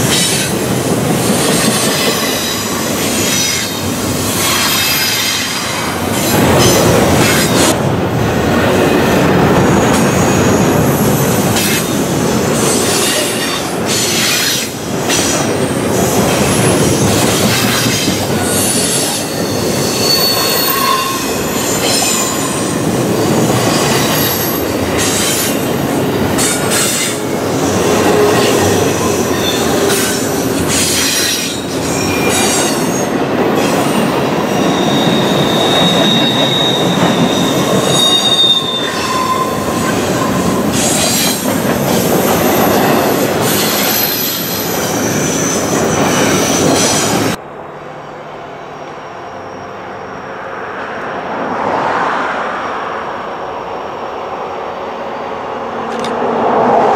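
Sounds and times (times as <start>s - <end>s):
train cars rumbling and rattling: 0.0s - 56.9s
high-pitched wheel squeals: 18.5s - 22.8s, 28.2s - 33.0s, 33.6s - 41.4s.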